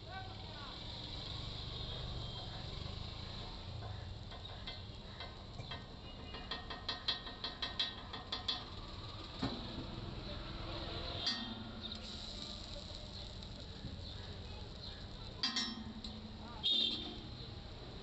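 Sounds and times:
spatula tapping on griddle: 3.8 - 8.8.

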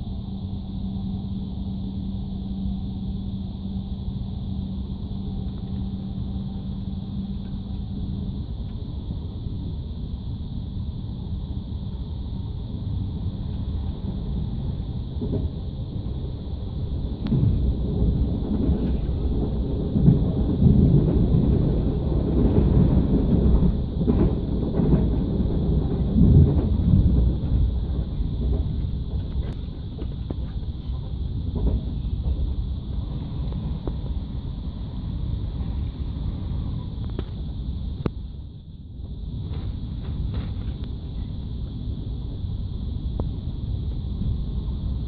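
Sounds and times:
steady hum: 0.0 - 45.0
train rumbling on track: 0.0 - 45.0.

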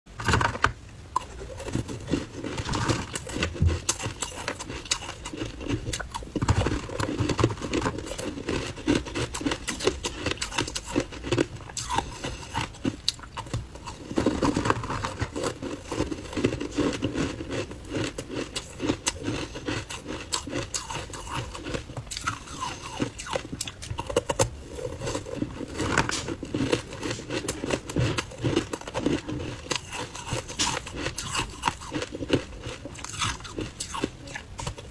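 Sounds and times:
crunching and mouth sounds: 0.2 - 34.9
metal spoon scraping ice: 1.4 - 6.0, 24.8 - 34.1.

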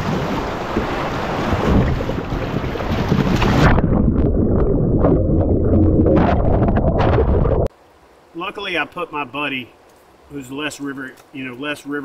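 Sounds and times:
muffled underwater churning: 0.0 - 7.7.

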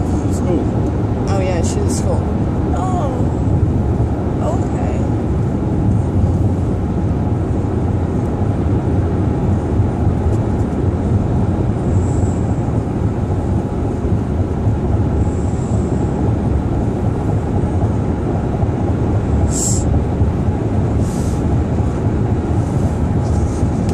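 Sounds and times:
car cabin road rumble: 0.0 - 23.9
short high hiss: 19.5 - 19.8.

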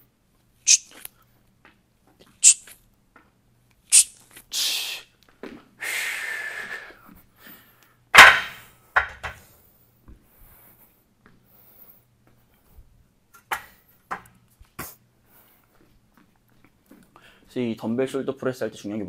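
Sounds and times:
man breathing out hard: 5.8 - 7.8
dumbbells thudding down: 8.2 - 9.4.

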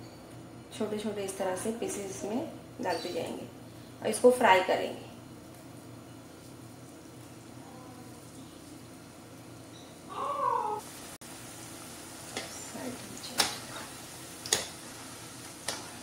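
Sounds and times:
food sizzling in hot oil: 6.5 - 16.0
meow-like call: 10.1 - 10.8.

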